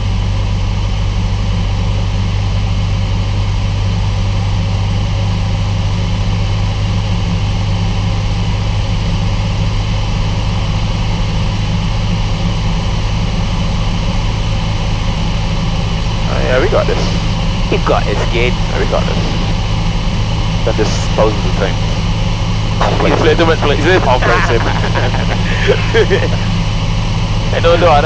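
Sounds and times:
propeller plane engine droning: 0.0 - 28.0.

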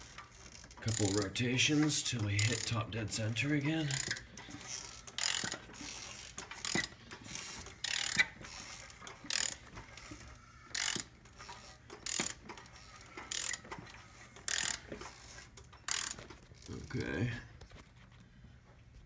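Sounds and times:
socket ratchet clicking: 3.9 - 16.3.

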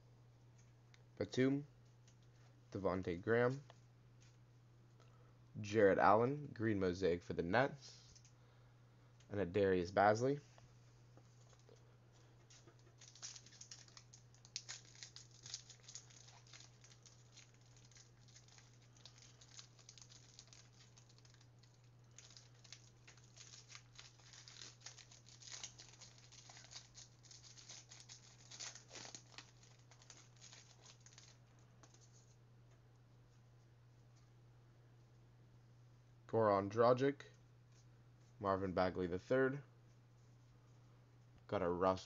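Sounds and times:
steady low hum: 0.0 - 42.0
wrapper crinkling and tearing: 12.5 - 32.3.

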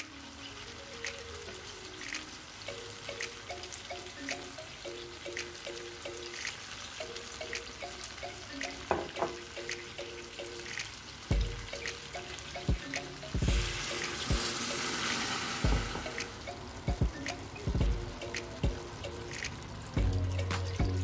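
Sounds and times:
water pouring into a pot: 6.2 - 16.7.

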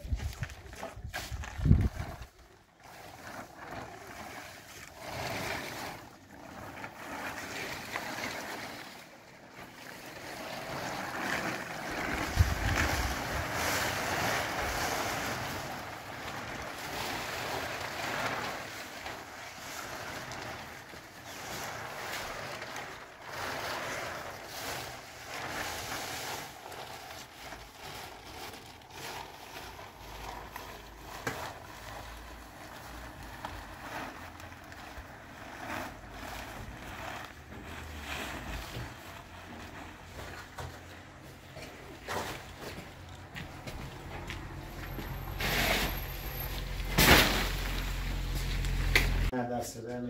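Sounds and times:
wind buffeting microphone: 0.0 - 2.3, 12.2 - 13.5
plastic sheet rustling: 0.0 - 49.3.

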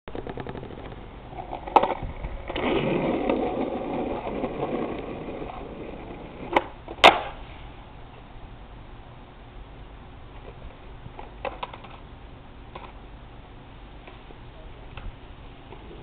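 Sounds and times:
skateboard landing clack: 0.1 - 7.4, 11.2 - 12.0
skateboard tail popping on road: 0.1 - 7.5, 10.4 - 12.1
skateboard wheels rolling on asphalt: 0.1 - 16.0.

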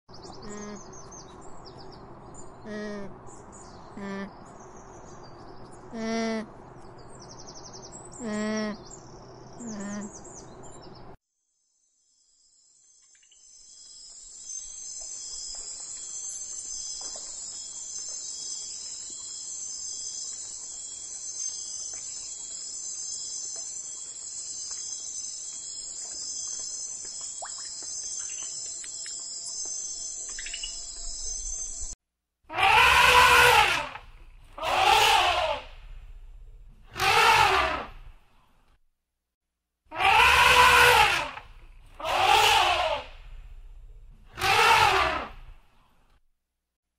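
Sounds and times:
high chorus of insects: 12.2 - 32.0
capybara calls: 32.5 - 35.7, 39.9 - 43.2, 44.3 - 45.4
elephant calls: 32.5 - 35.7, 36.9 - 38.0, 39.9 - 43.2, 44.3 - 45.5.

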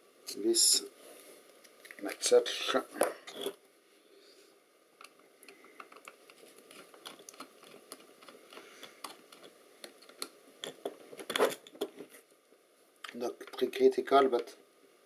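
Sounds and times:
screwdriver clicking and scraping: 5.0 - 11.9.

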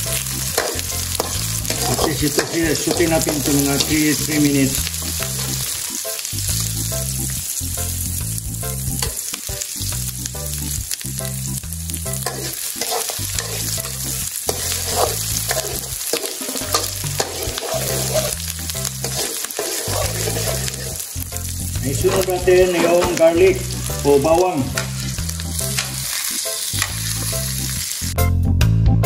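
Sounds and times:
onion sizzling in oil: 0.0 - 28.2
metal spoon scraping pan: 0.5 - 4.5, 12.2 - 21.1, 21.9 - 23.7.

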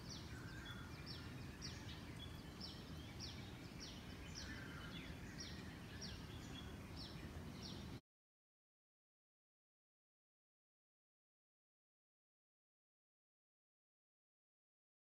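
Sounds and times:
birds calling: 0.0 - 8.0.

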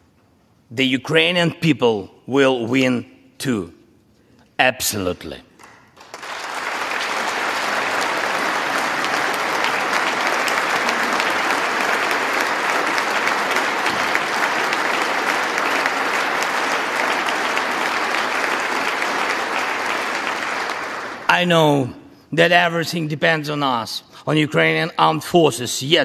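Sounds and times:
audience applauding: 5.6 - 21.5.

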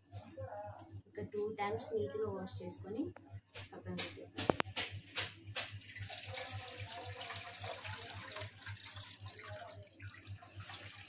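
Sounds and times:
water sloshing in a steel bowl: 5.6 - 11.0
washing water poured off: 5.8 - 11.0.

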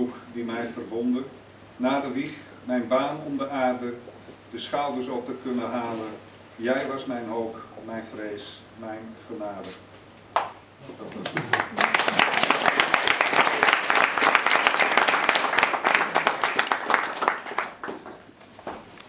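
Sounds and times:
audience applauding: 11.1 - 18.2.

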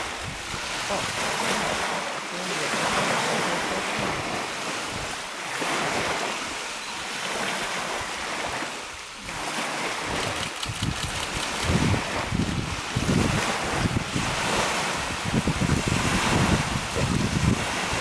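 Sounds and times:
small waves lapping on shore: 0.0 - 18.0
splashing through shallow water: 0.0 - 18.0
wind buffeting microphone: 7.3 - 18.0.

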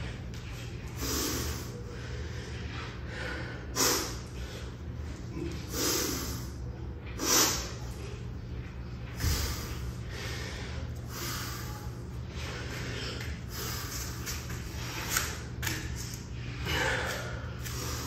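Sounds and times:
steady low hum: 0.0 - 18.0
man breathing forcefully: 0.9 - 4.9, 9.2 - 15.4, 16.4 - 18.0.

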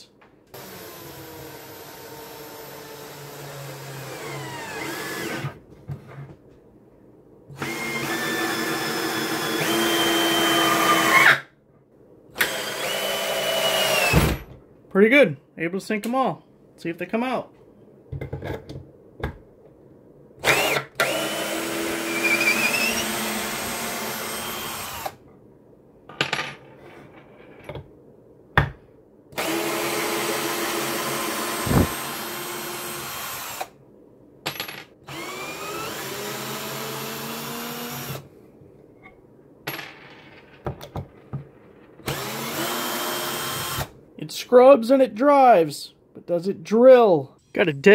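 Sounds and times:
cordless drill spinning up: 7.6 - 11.3, 12.4 - 14.2, 20.4 - 25.2, 29.4 - 33.7, 35.1 - 38.2, 42.0 - 43.9.

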